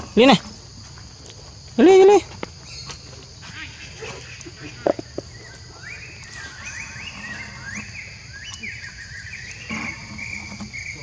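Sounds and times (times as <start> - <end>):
insects droning: 0.0 - 11.0
animal chirping calls: 3.5 - 10.1.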